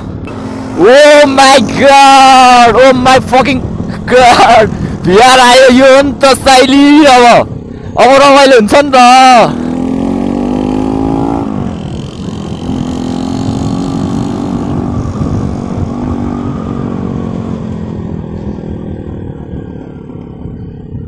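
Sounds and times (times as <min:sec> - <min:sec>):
motorcycle engine accelerating: 0:00.0 - 0:04.1, 0:09.0 - 0:21.0.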